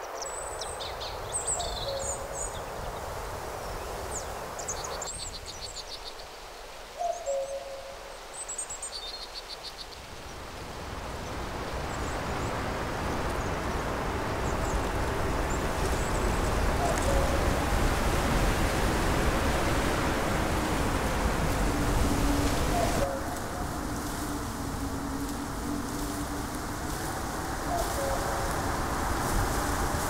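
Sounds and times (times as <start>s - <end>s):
small birds chirping and trilling: 0.0s - 7.6s, 26.8s - 29.3s
steady rushing background: 10.3s - 30.0s.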